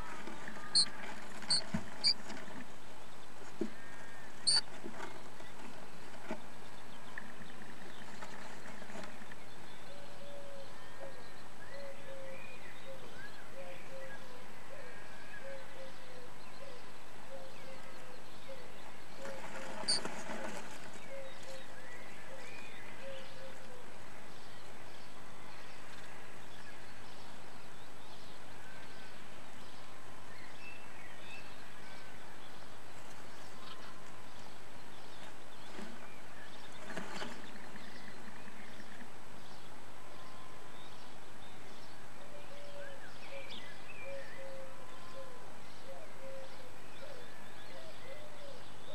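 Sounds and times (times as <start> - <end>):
faint bird calls: 0.0 - 2.3, 3.6 - 5.3, 9.7 - 24.5, 42.2 - 48.9
swifts calling: 0.0 - 2.3, 3.8 - 4.7, 18.5 - 23.6
microphone hiss: 0.0 - 48.9.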